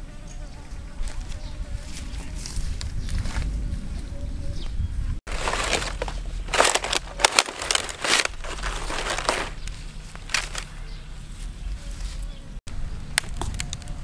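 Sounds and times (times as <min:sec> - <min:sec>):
dry palm fronds crackling: 0:05.3 - 0:14.0.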